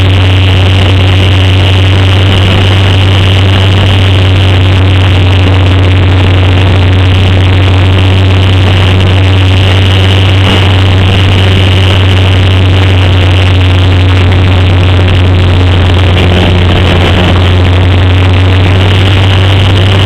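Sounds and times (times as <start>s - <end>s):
electric motor and propeller humming: 0.0s - 20.0s
wind rush: 0.0s - 20.0s.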